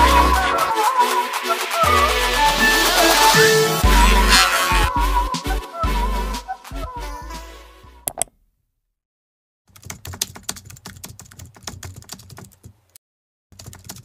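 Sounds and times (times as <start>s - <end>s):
music: 0.0s - 8.0s
keyboard typing clicks: 8.1s - 8.3s.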